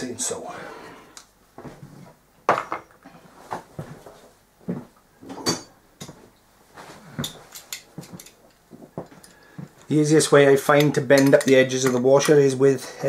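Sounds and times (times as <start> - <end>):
metal tools clinking: 7.2 - 12.6.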